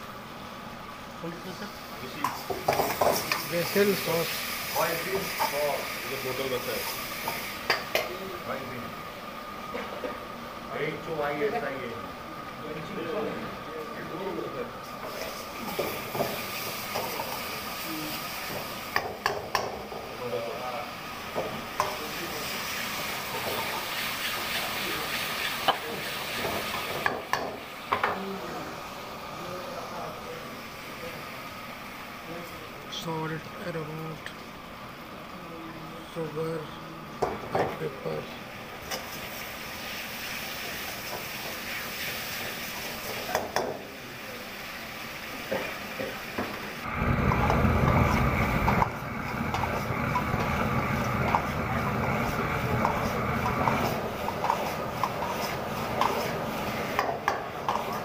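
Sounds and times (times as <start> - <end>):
gas burner roaring: 0.0 - 58.0
sauce sizzling in a wok: 0.0 - 58.0
metal ladle scraping wok: 52.2 - 57.0.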